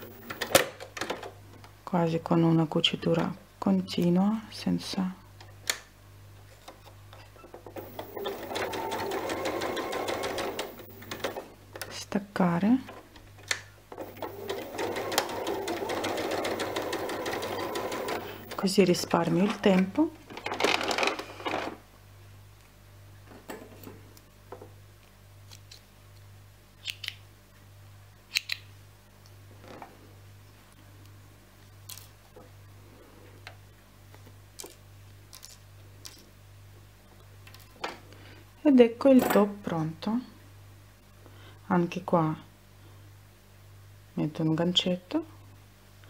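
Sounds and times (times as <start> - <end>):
sewing machine stitching: 0.0 - 0.6, 7.6 - 11.5, 13.9 - 19.6
faint steady hum: 0.0 - 46.0.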